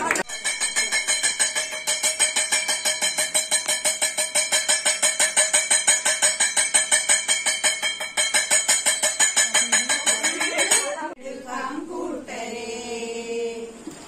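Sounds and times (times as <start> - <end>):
metal bell ringing rapidly: 0.0 - 11.0.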